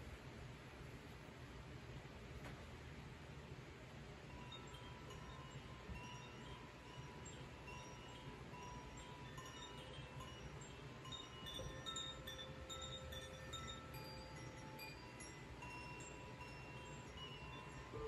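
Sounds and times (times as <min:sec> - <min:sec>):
bamboo chime tinkling: 0:04.3 - 0:18.0
singing bowl low tone: 0:04.4 - 0:18.0.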